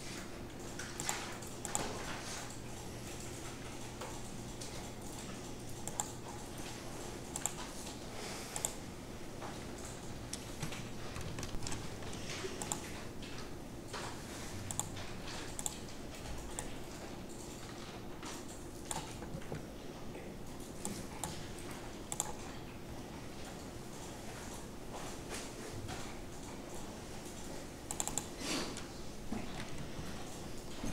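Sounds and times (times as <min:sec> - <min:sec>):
mouse and keyboard clicking: 0:00.6 - 0:02.0, 0:04.0 - 0:06.2, 0:07.3 - 0:07.8, 0:08.6 - 0:08.8, 0:12.5 - 0:12.9, 0:14.0 - 0:16.8, 0:18.4 - 0:19.3, 0:22.1 - 0:22.4, 0:27.3 - 0:28.3.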